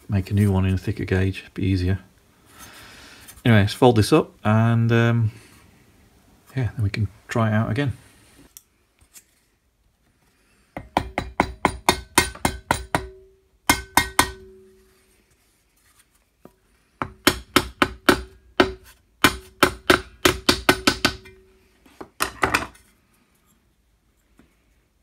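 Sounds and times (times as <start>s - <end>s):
hammer striking metal: 10.8s - 14.9s, 17.0s - 21.5s.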